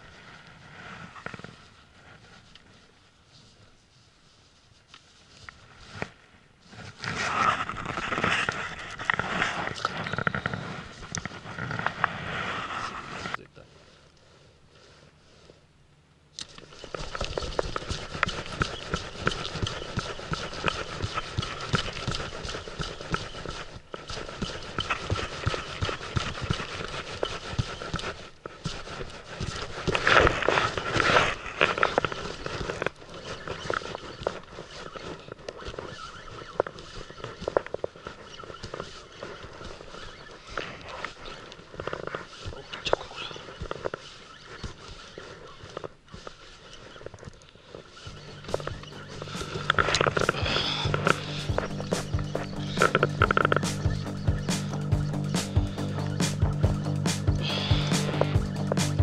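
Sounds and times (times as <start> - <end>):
jacket rustling against microphone: 0.0 - 15.7, 16.5 - 59.0
reel whirring: 3.8 - 13.4, 16.4 - 59.0
fishing reel clicks and knocks: 48.1 - 58.8.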